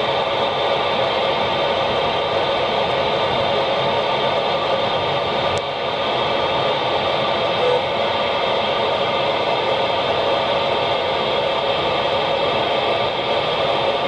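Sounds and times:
car road and engine noise: 0:00.0 - 0:14.0
radio receiver hiss: 0:00.0 - 0:14.0
brief tone: 0:07.6 - 0:07.9.

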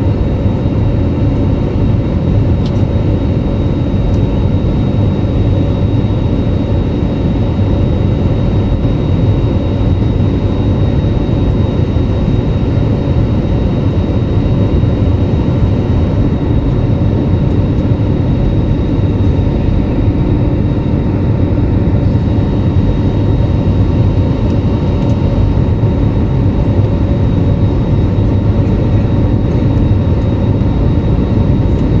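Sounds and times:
jet engine cabin rumble: 0:00.0 - 0:32.0.

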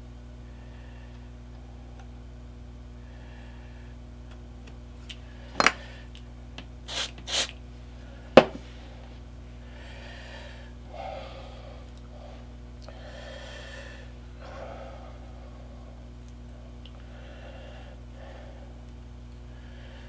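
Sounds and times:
low electrical hum: 0:00.0 - 0:20.0
short hisses: 0:06.9 - 0:07.6
wooden frame knocking: 0:08.4 - 0:08.6.

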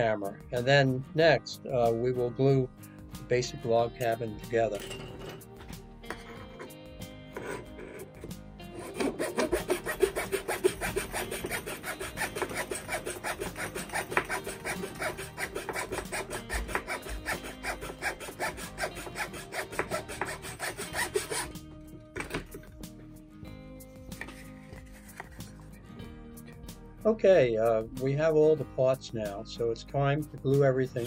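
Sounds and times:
saw cutting wood: 0:06.4 - 0:21.6.

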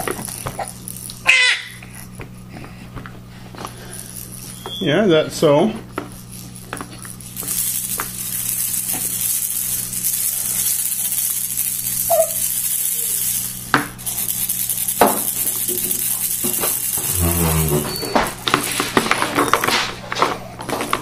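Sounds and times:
bead rattle shaking: 0:00.0 - 0:02.1, 0:03.8 - 0:04.7, 0:05.9 - 0:19.0.

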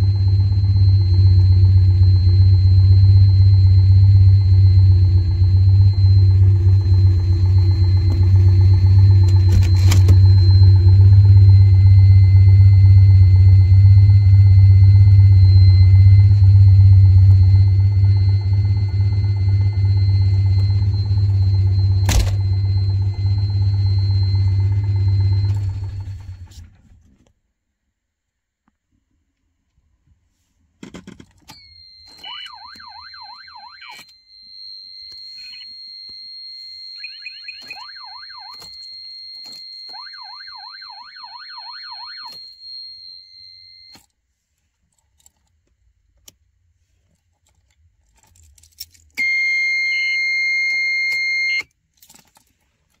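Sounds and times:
high-pitched alarm beep: 0:00.0 - 0:26.4, 0:31.5 - 0:44.0, 0:49.2 - 0:51.7
warbling siren sweep: 0:00.0 - 0:26.6, 0:31.6 - 0:34.1, 0:35.0 - 0:35.7, 0:36.5 - 0:38.8, 0:39.4 - 0:43.9.

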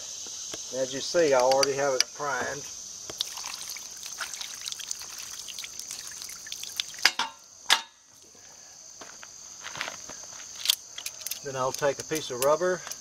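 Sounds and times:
crickets chirring: 0:00.0 - 0:13.0
water pouring and splashing: 0:03.1 - 0:07.4.

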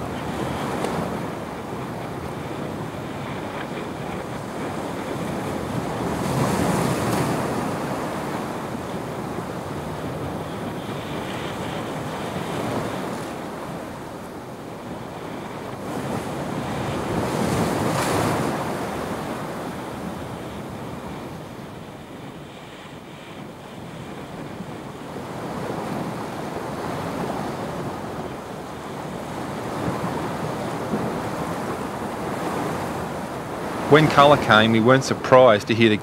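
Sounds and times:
wind noise on microphone: 0:00.0 - 0:34.6
surf breaking against rocks: 0:00.2 - 0:08.7, 0:24.2 - 0:36.0.

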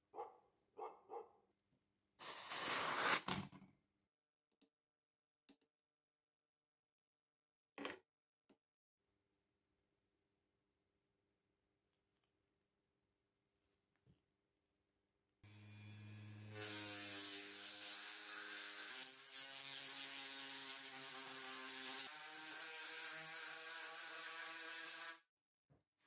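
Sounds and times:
rotary tool sanding metal wire: 0:15.5 - 0:25.2.

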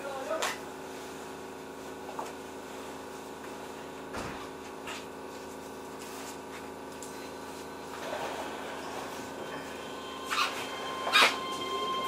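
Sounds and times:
electric train humming: 0:07.4 - 0:12.0.

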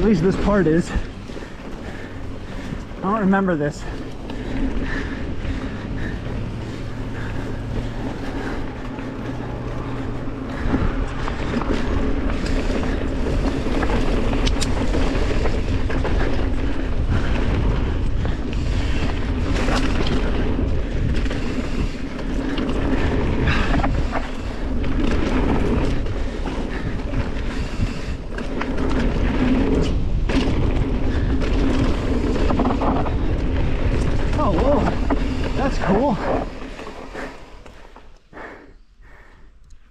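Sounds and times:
bike clicks and rattles: 0:00.0 - 0:39.9
bike tyres rolling on dirt: 0:00.0 - 0:39.9.

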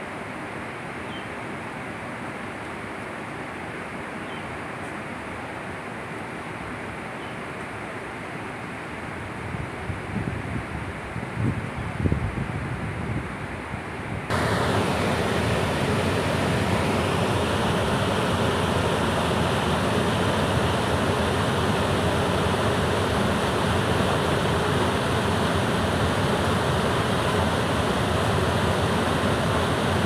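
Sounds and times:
wind rumble on microphone: 0:09.4 - 0:15.0
whitewater rushing over rocks: 0:14.3 - 0:30.0.

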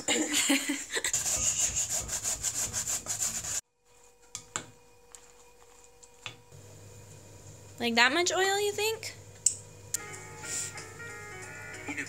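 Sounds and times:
potato grating on a grater: 0:01.1 - 0:03.6.

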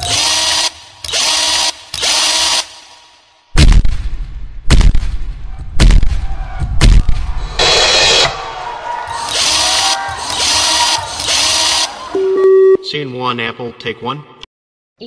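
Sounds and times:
heavy booming hits: 0:03.6 - 0:08.5
static-like hiss bursts: 0:07.6 - 0:08.4.

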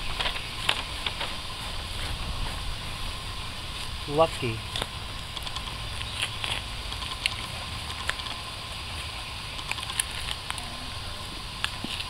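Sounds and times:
scraping and brushing soil off stone: 0:00.0 - 0:05.0
low steady rumble: 0:00.0 - 0:12.0.

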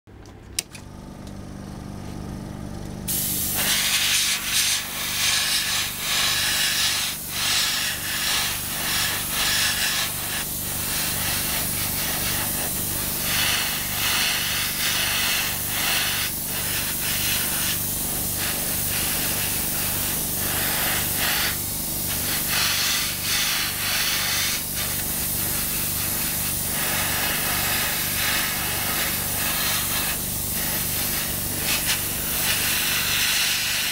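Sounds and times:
low pulsing machine hum: 0:00.2 - 0:06.4
airbrush spraying hiss: 0:03.1 - 0:33.9.

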